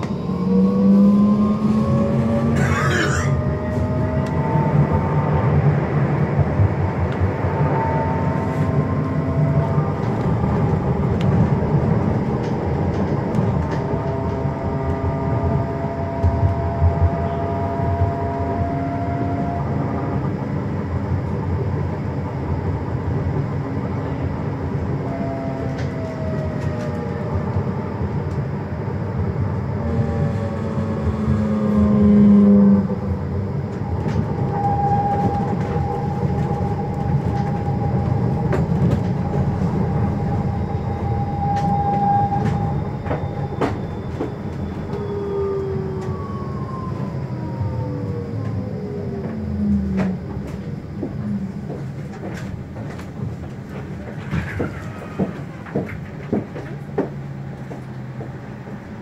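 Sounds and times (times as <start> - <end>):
traction motor whine: 0.0 - 6.0, 24.6 - 53.2
tram wheels rumbling on rail: 0.0 - 59.0.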